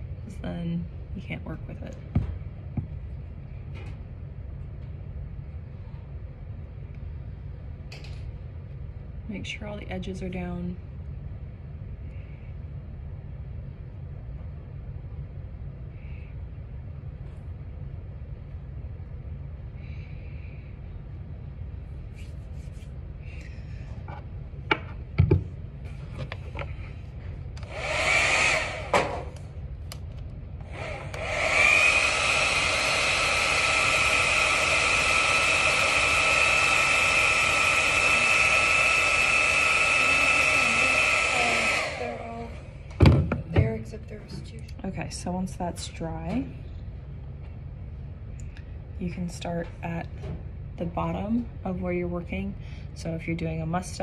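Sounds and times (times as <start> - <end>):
low steady hum: 0.0 - 28.1, 28.7 - 31.4, 40.0 - 54.0
blow dryer running: 24.0 - 44.0.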